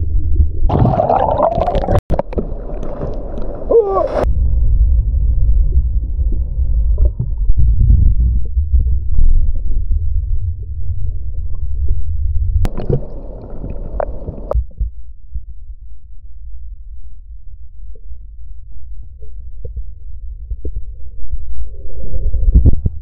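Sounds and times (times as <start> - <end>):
muffled surf rumble: 0.0 - 23.0
hissy water sound: 12.7 - 14.6.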